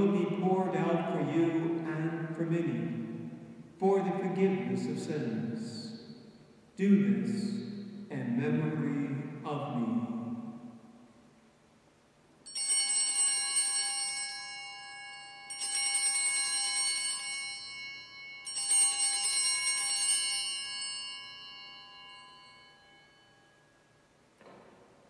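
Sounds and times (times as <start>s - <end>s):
altar bells jangling: 12.5s - 24.0s.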